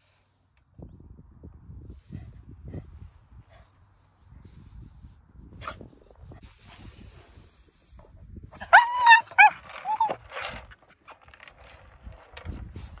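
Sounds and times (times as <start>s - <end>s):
dog yelping: 8.6s - 10.6s.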